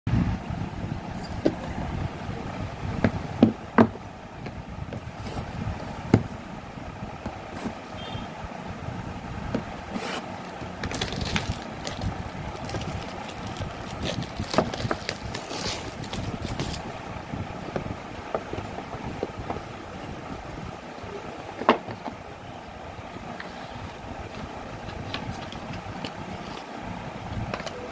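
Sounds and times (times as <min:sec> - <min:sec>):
low background hum: 0:00.1 - 0:27.9
plastic wrap rustling and scraping: 0:09.7 - 0:16.9.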